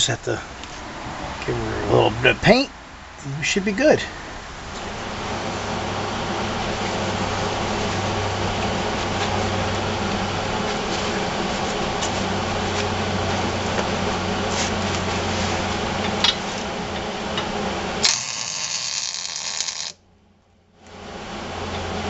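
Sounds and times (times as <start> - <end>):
steady hum: 0.0 - 22.0
welding arc crackling hiss: 18.0 - 20.0
welding gun clicks: 18.0 - 20.0.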